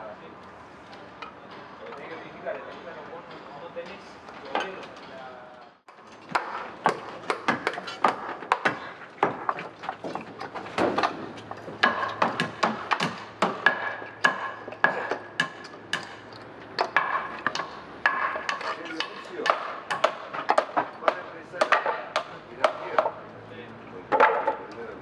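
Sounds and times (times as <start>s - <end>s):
hammers striking nails and boards: 6.3s - 23.2s, 24.1s - 24.7s.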